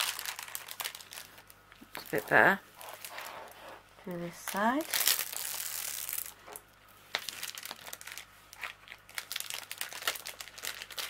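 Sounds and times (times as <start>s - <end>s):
cellophane crinkling: 0.0s - 11.0s.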